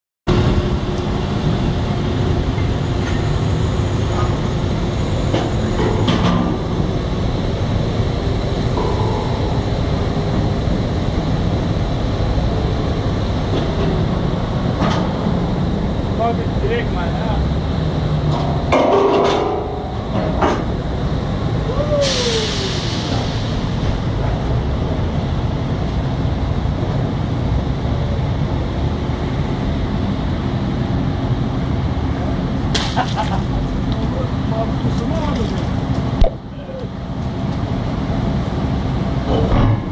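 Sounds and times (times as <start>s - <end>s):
drilling rig low rumble: 0.3s - 39.9s
air hissing: 21.9s - 24.1s.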